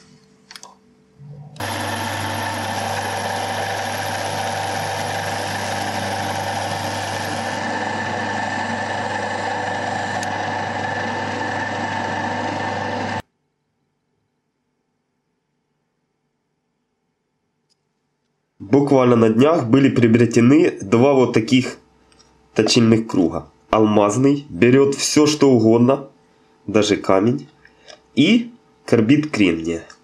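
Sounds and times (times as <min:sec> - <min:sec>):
cutting tool on metal: 0:01.6 - 0:12.2
metal lathe humming: 0:01.6 - 0:13.2.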